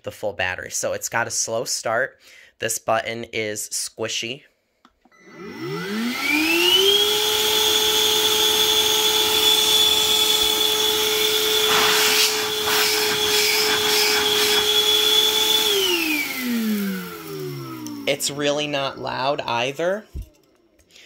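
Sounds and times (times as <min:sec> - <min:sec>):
vacuum motor whine: 0:05.1 - 0:20.3.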